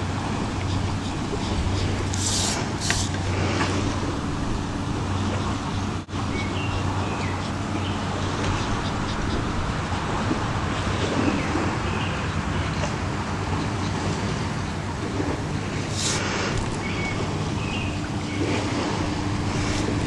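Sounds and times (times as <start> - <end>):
low hum and hiss: 0.0 - 20.0
hissing swishes: 1.0 - 4.0, 15.8 - 20.0.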